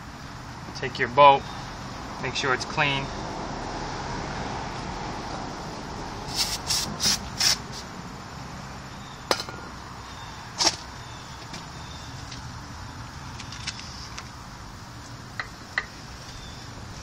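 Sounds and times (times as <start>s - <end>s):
aerosol spray hissing: 6.3s - 7.9s.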